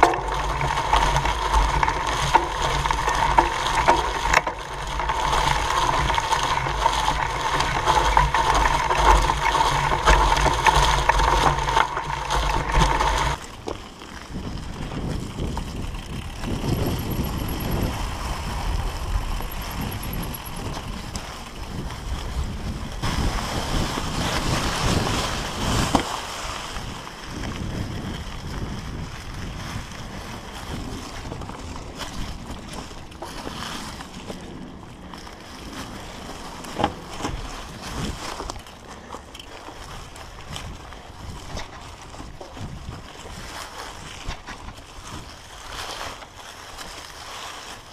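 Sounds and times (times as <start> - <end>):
bicycle drivetrain and frame rattle: 0.0 - 47.9
leaves crunching: 0.0 - 47.9
tyre rumble on dirt: 0.0 - 47.9
wind on microphone: 14.2 - 47.9.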